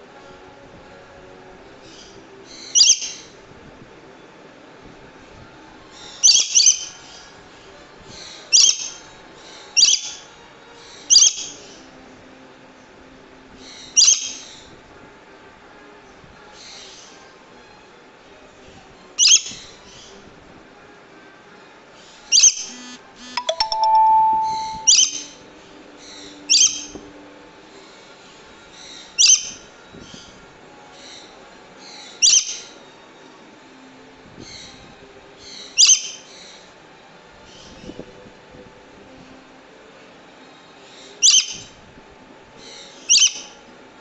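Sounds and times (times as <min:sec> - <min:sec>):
two-tone ringing chime: 0:22.7 - 0:25.3
parrot shrill screeching calls: 0:41.2 - 0:41.6, 0:43.1 - 0:43.5.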